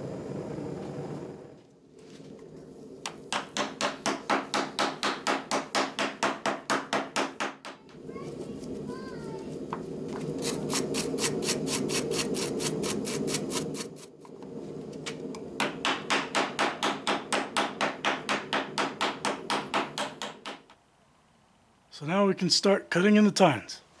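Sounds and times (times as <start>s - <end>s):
steady low hum: 0.0s - 23.0s
hammer striking hot metal: 3.1s - 7.9s, 15.6s - 20.6s.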